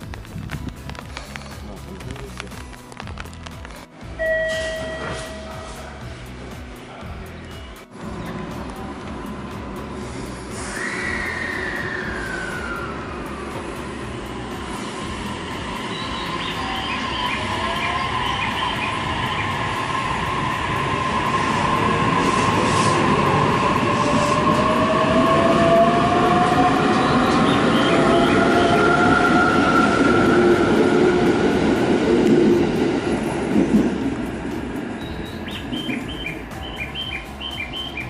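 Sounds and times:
train wheels rumbling: 0:04.2 - 0:38.0
high chirps: 0:15.6 - 0:20.1, 0:34.9 - 0:38.0.

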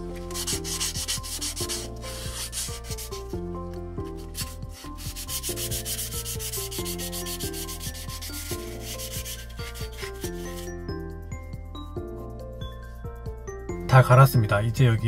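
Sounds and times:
wet sandpaper rasping on wood: 0:00.3 - 0:03.3, 0:04.2 - 0:10.7.

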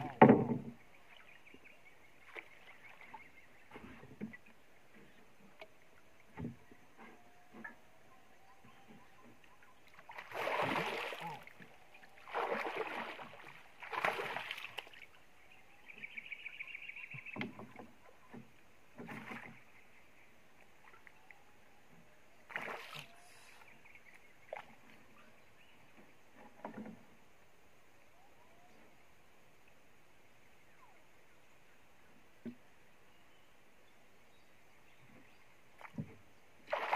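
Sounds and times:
water splashing beside boat: 0:00.0 - 0:21.4, 0:22.4 - 0:27.2, 0:34.9 - 0:36.9.

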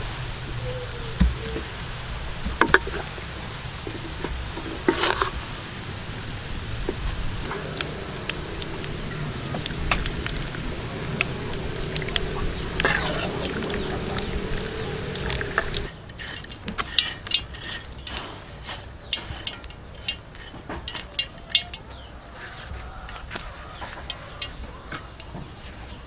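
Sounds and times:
low hum and hiss: 0:00.0 - 0:26.0
spatula tossing fried shallots: 0:07.6 - 0:24.6.

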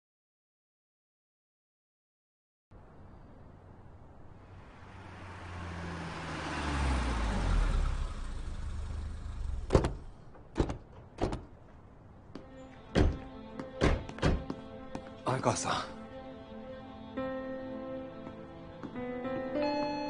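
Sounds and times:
car engine and tyre noise: 0:02.7 - 0:13.2
sharp knocks: 0:09.6 - 0:11.5, 0:12.9 - 0:14.6.

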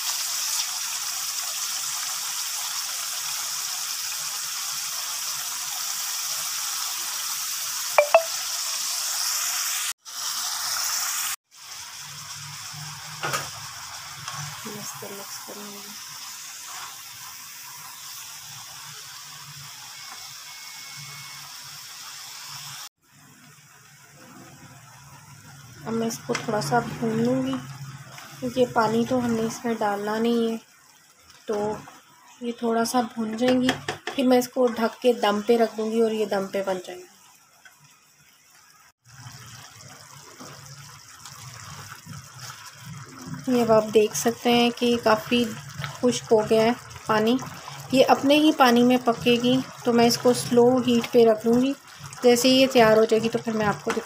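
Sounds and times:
vegetables sizzling in a pan: 0:00.0 - 0:54.0
spatula stirring: 0:41.2 - 0:43.8, 0:45.4 - 0:48.0.

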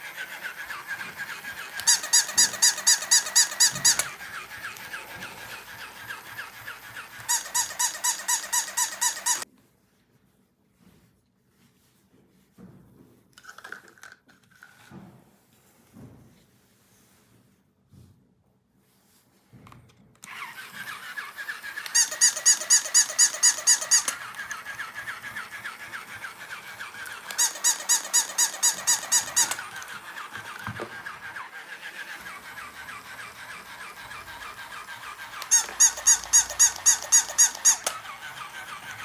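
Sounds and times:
toy motor whirring and rattling: 0:00.0 - 0:09.5, 0:13.4 - 0:14.9, 0:20.2 - 0:39.0.

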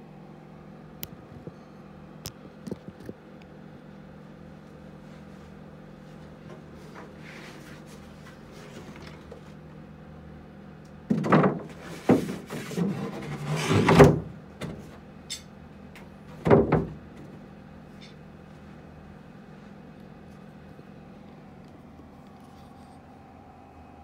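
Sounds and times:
steady low hum: 0:00.0 - 0:24.0
wood-on-wood knocks and scrapes: 0:11.1 - 0:14.8.

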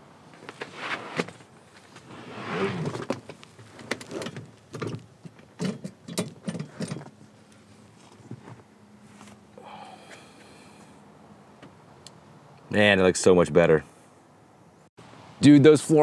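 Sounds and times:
rubber mats scuffing and rubbing: 0:00.4 - 0:04.2, 0:07.7 - 0:09.4
mat rustling: 0:00.4 - 0:04.4.

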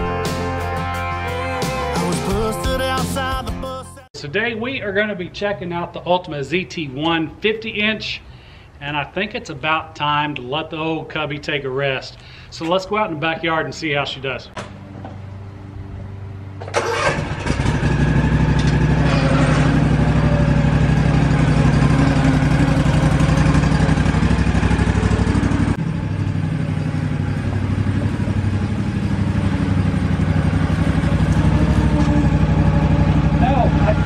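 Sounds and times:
lawn mower engine running: 0:14.6 - 0:34.0.

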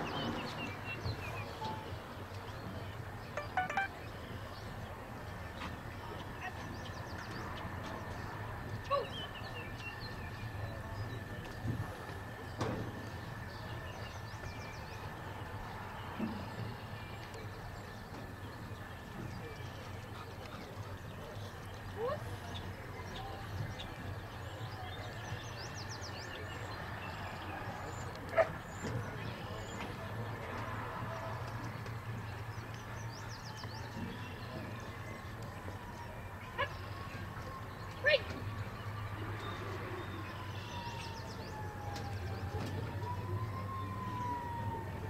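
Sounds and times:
open-air ambient noise: 0:00.0 - 0:45.0
distant siren wailing: 0:03.4 - 0:04.1, 0:33.7 - 0:38.5, 0:39.1 - 0:45.0.

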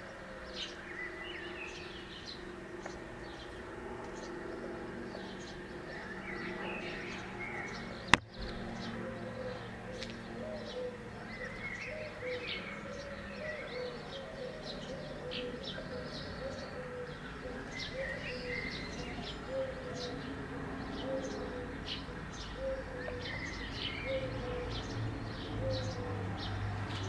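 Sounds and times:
small birds chirping: 0:00.0 - 0:27.0
low cooing: 0:08.8 - 0:24.8, 0:25.6 - 0:26.4.

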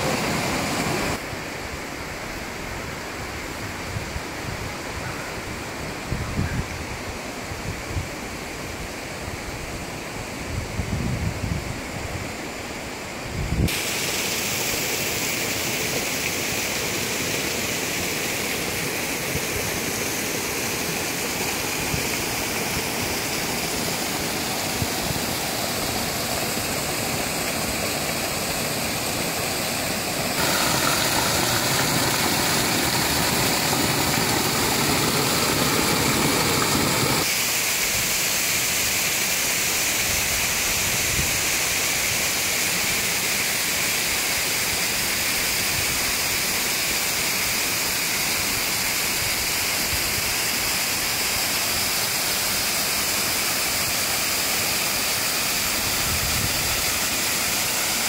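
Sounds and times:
waterfall rushing: 0:00.0 - 0:01.3, 0:13.7 - 0:58.0.

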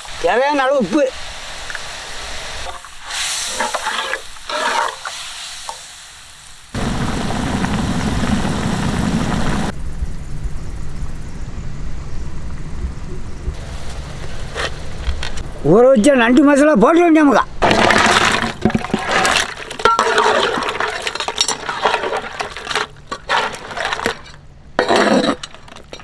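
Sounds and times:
gravy boiling and bubbling: 0:06.6 - 0:09.7, 0:17.6 - 0:24.4
ladle stirring with splashes: 0:17.6 - 0:26.0.

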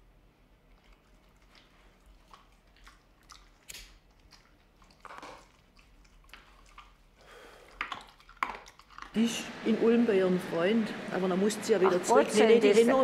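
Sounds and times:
dog eating from metal bowl: 0:00.8 - 0:09.2.

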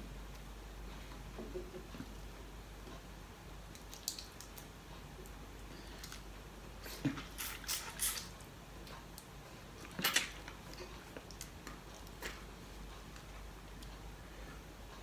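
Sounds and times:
mouth eating sound: 0:06.8 - 0:08.4.

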